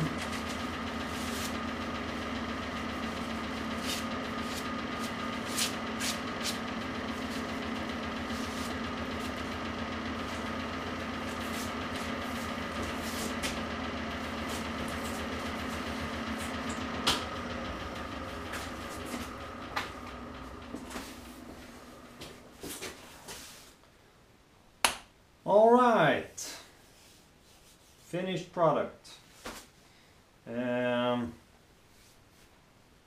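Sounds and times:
metal shaper electric drive hum: 0:00.0 - 0:23.6.

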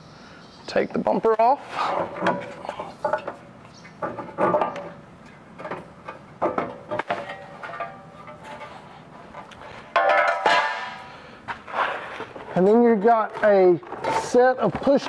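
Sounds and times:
car parts clattering and knocking: 0:01.9 - 0:11.1, 0:12.2 - 0:15.0.

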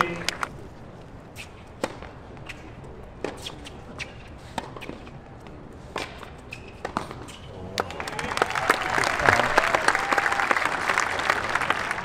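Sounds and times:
low crowd murmur: 0:00.0 - 0:12.0
tennis ball hit by rackets: 0:01.4 - 0:05.2, 0:05.9 - 0:07.4
tennis ball bouncing: 0:01.4 - 0:07.9.

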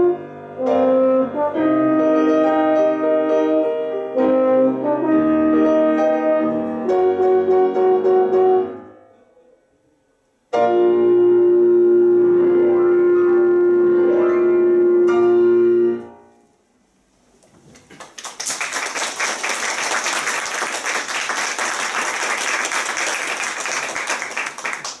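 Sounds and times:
piano chords: 0:00.0 - 0:09.2, 0:10.5 - 0:16.3
audience applause: 0:17.8 - 0:25.0.

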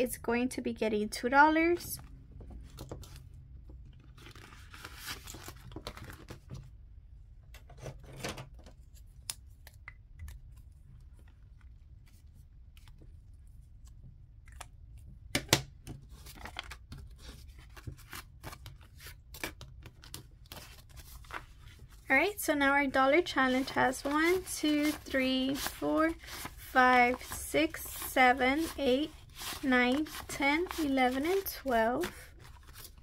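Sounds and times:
plastic and paper crinkling: 0:04.0 - 0:06.6, 0:16.1 - 0:33.0
marker strokes on paper: 0:23.1 - 0:32.0.

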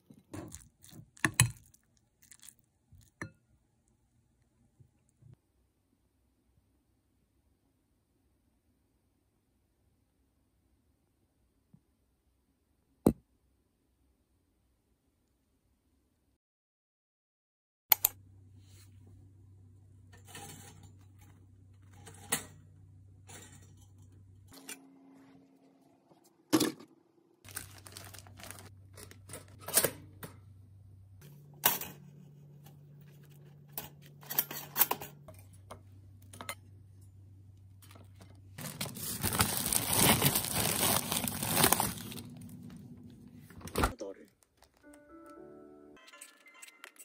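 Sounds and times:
plastic bags crinkling: 0:27.5 - 0:29.6, 0:37.9 - 0:42.8, 0:44.2 - 0:44.9.

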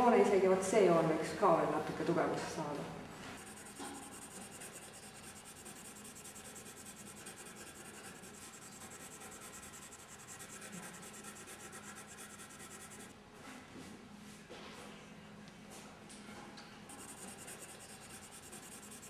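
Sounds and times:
low steady hum: 0:00.0 - 0:13.1
pencil scratching on paper: 0:03.4 - 0:13.1, 0:16.9 - 0:19.0.

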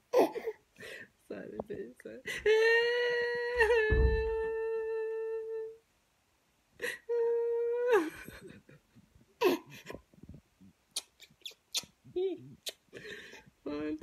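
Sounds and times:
baby whimpering cry: 0:00.1 - 0:00.6.

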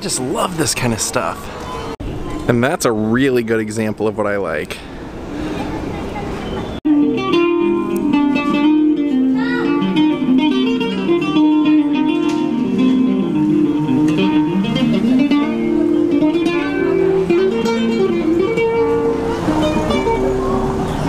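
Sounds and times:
acoustic guitar melody: 0:06.9 - 0:21.0.

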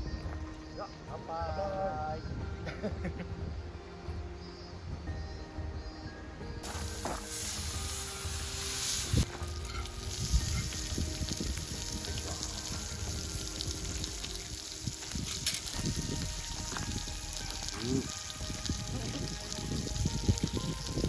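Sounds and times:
background music: 0:00.0 - 0:21.0
meat sizzling in a frying pan: 0:06.6 - 0:21.0.

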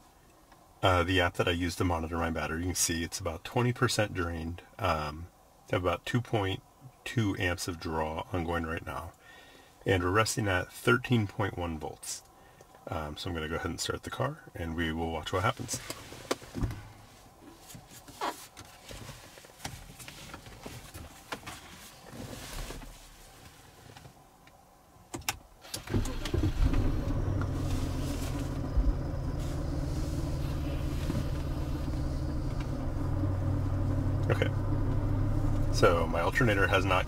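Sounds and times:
car engine starting and idling: 0:25.2 - 0:37.0.

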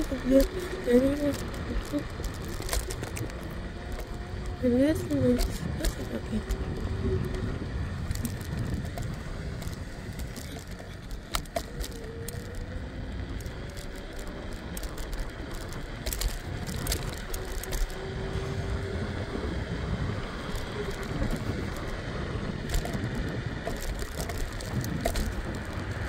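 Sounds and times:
clicks and rattles over bumps: 0:00.0 - 0:18.4, 0:20.0 - 0:26.0
scooter wheels rumbling on pavement: 0:00.0 - 0:26.0
wind: 0:00.0 - 0:26.0.

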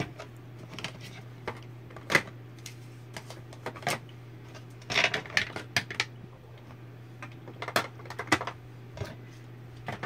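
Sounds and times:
plastic compacts clicking and clattering: 0:07.2 - 0:09.2.

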